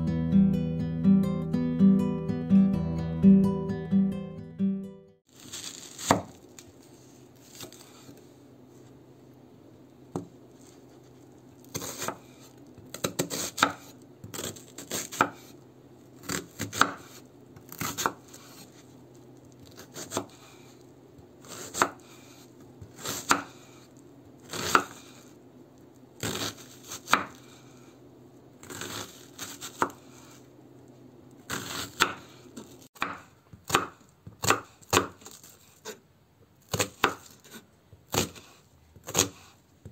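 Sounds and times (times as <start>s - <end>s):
knife chopping on wooden board: 5.6s - 6.4s, 10.1s - 10.3s, 11.7s - 12.3s, 12.9s - 15.5s, 16.2s - 18.6s, 19.8s - 20.5s, 21.4s - 23.7s, 24.5s - 25.2s, 26.2s - 27.6s, 28.6s - 30.4s, 31.5s - 36.0s, 36.7s - 39.9s.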